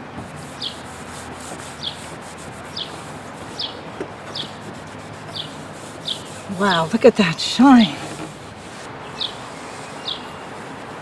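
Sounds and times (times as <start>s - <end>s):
cloth rubbing plastic lens: 0.4s - 6.8s, 7.7s - 11.0s
high falling bird chirp: 0.6s - 0.8s, 2.7s - 4.6s, 5.3s - 6.9s, 9.0s - 10.4s.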